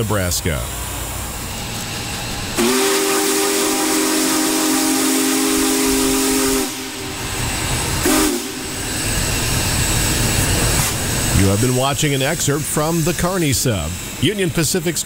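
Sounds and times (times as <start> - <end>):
low locomotive rumble: 0.0 - 15.0
steam hissing: 0.0 - 15.0
steam whistle blasts: 2.6 - 9.3.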